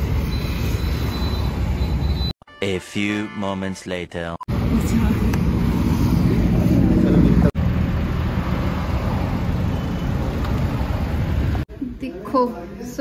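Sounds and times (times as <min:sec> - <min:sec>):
road vehicle rumble: 0:00.0 - 0:02.3, 0:04.5 - 0:11.8.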